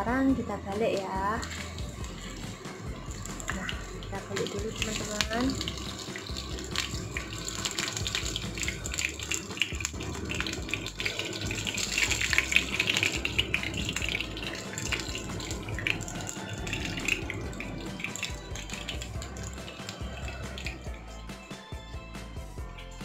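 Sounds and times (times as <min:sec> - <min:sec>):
patties sizzling in hot oil: 0:00.0 - 0:23.0.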